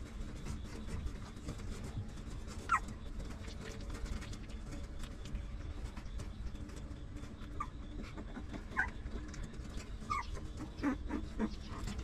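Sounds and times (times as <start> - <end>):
low steady background noise: 0.0 - 12.0
puppies squeaking: 2.6 - 3.0, 7.4 - 12.0.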